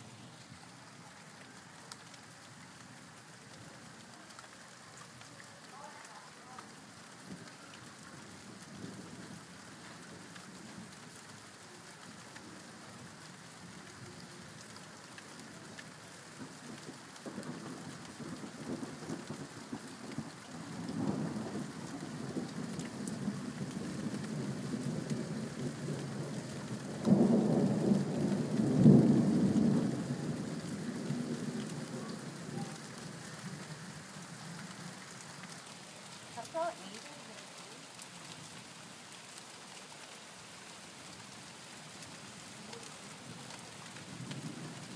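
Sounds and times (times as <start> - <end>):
rain falling: 0.0 - 44.9
thunder rumbling: 16.4 - 33.8, 42.6 - 44.9.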